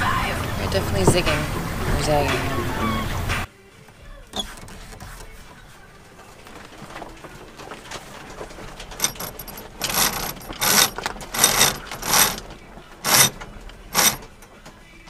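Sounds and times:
winch ratchet rasping: 8.9s - 14.6s.

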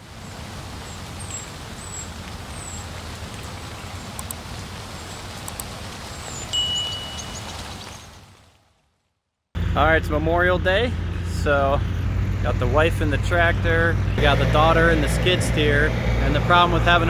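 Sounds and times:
rain hiss: 0.0s - 8.7s
high falling chirps: 6.2s - 8.1s
thin high tone: 6.5s - 7.6s
low rumble: 9.6s - 17.0s.

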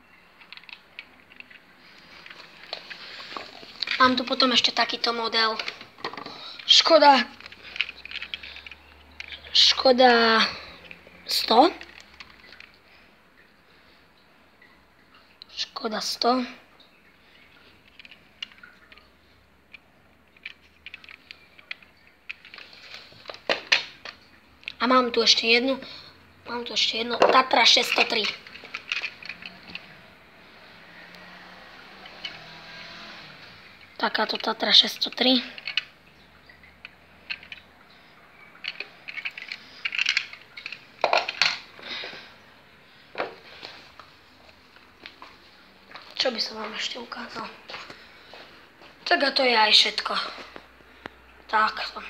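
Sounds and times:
handling rustling: 0.4s - 9.6s, 27.2s - 30.2s, 38.4s - 42.3s
clattering rustles: 27.2s - 30.1s, 38.5s - 42.3s
model car handling clicks: 38.6s - 41.6s.

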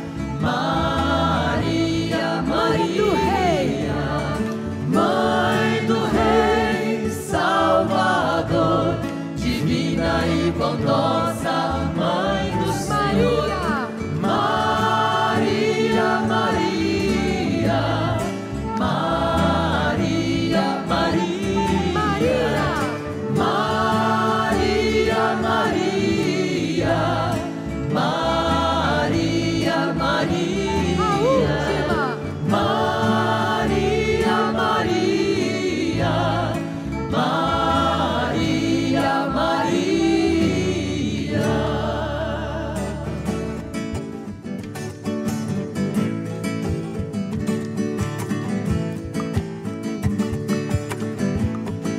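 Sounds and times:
choir singing a hymn: 0.0s - 43.9s.

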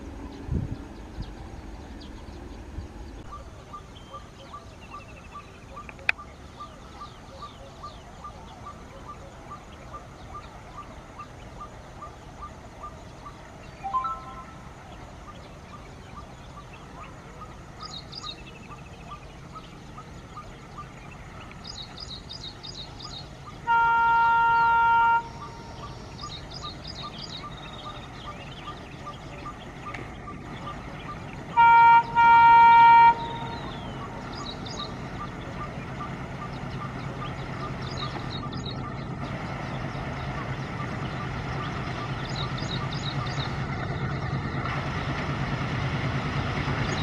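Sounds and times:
birds chirping: 0.0s - 44.8s, 46.1s - 47.0s
train engine rumble: 0.0s - 47.0s
locomotive horn blasts: 23.6s - 25.9s, 31.5s - 33.8s.

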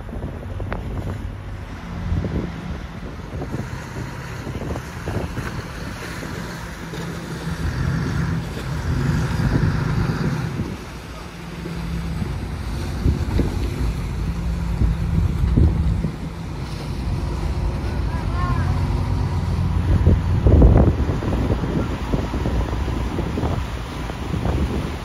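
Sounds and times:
boat engines humming: 0.0s - 25.0s
water churning along hulls: 0.0s - 25.0s
wind buffeting microphone: 0.0s - 25.0s.

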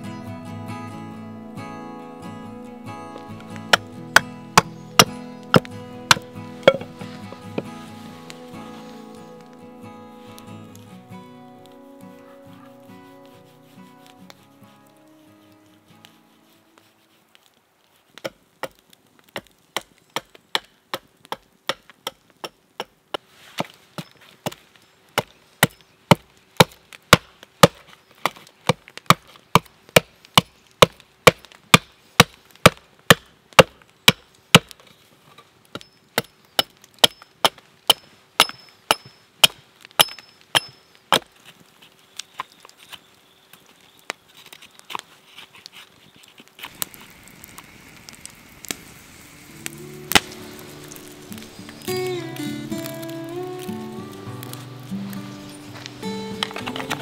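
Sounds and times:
axe chopping wood: 3.7s - 6.9s, 18.2s - 23.7s, 25.2s - 34.8s, 35.8s - 41.3s
faint scraping: 5.8s - 9.6s, 11.7s - 17.6s.

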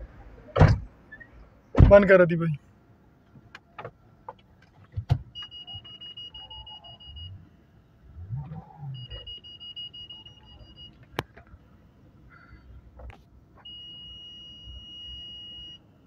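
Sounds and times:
long high electronic beeps: 5.4s - 7.4s.

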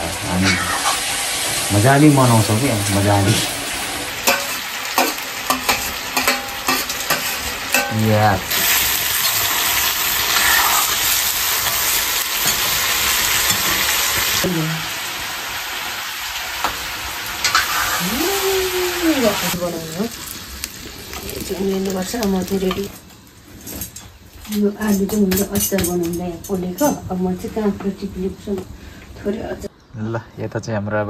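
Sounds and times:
food sizzling in a wok: 0.0s - 29.7s
ladle scraping a pan: 10.3s - 12.6s.

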